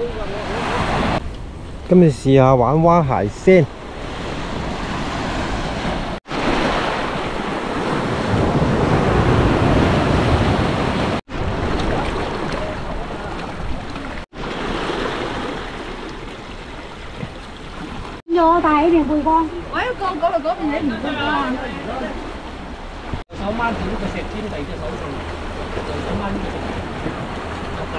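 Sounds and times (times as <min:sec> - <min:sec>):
wind buffeting microphone: 0:00.0 - 0:18.2
surf washing onto shore: 0:02.8 - 0:18.2, 0:19.6 - 0:27.9.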